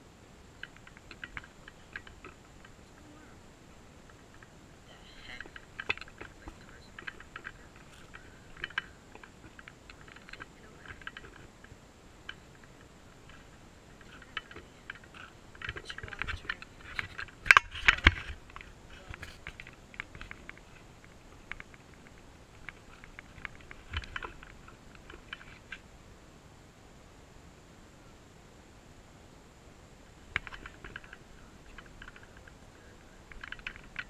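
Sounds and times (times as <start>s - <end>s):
camera handling over dry dirt: 5.3s - 25.8s.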